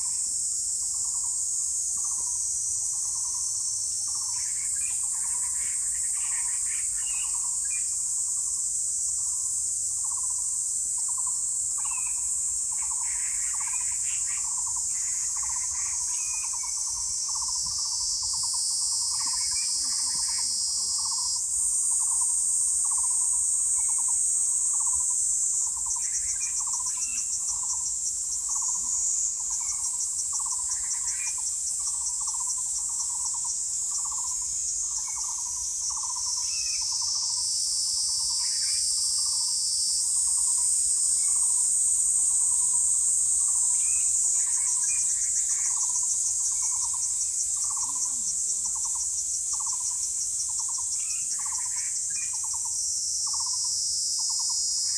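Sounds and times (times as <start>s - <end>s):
pulsing insect chorus: 0.0s - 54.9s.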